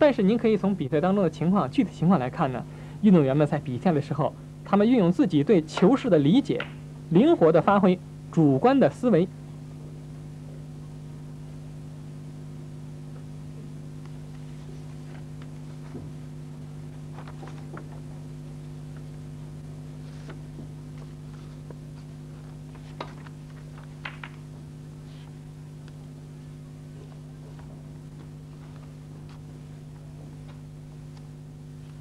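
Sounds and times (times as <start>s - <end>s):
steady electrical hum: 0.0s - 32.0s
snooker balls clicking: 6.6s - 6.8s, 23.8s - 24.5s.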